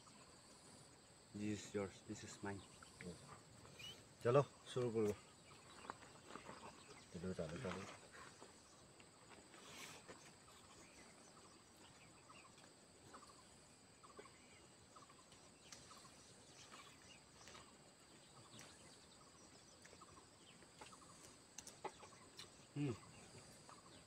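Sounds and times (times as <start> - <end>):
bird chirps: 0.0 - 24.0
insect drone: 0.0 - 24.0
faint clicks: 20.8 - 22.6.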